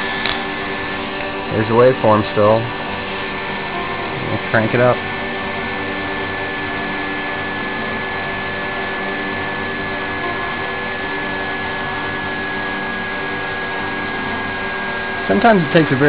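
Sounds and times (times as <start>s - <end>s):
generator rotor whirring: 0.0s - 16.0s
thin high whine: 0.0s - 16.0s.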